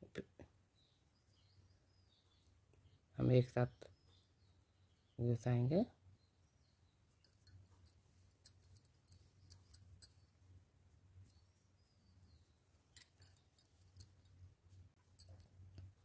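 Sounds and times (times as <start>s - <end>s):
knitting needles clicking: 7.2s - 10.2s, 12.9s - 14.4s.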